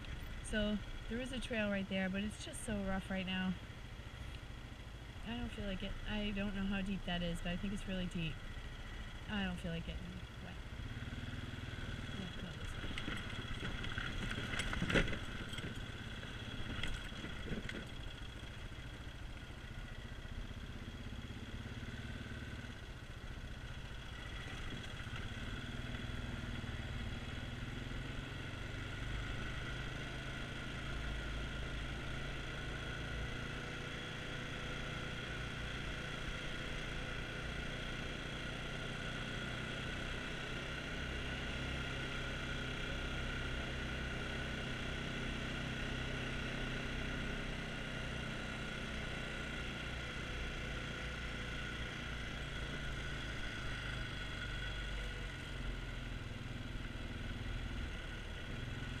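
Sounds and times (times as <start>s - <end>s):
atv engine running: 0.0s - 59.0s
sharp knocks over rough ground: 12.7s - 15.9s.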